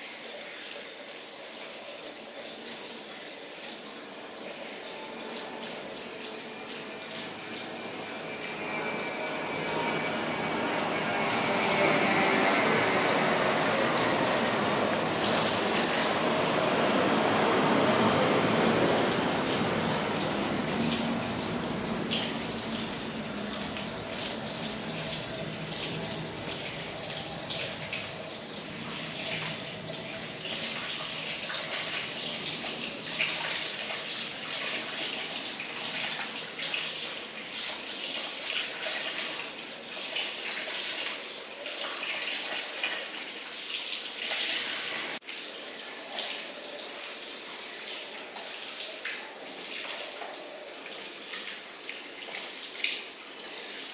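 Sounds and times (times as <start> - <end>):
shower sprayer on wet hair: 4.4 - 36.4, 44.0 - 45.2.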